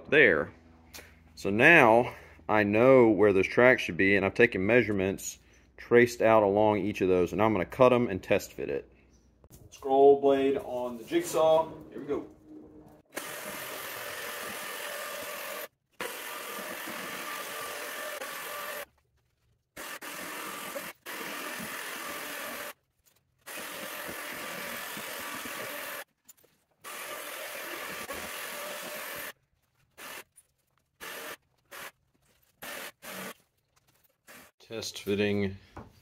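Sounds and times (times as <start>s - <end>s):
jigsaw cutting foam: 13.1s - 19.0s, 19.7s - 22.8s, 23.4s - 26.1s, 26.8s - 30.3s, 31.0s - 33.5s, 34.1s - 34.6s.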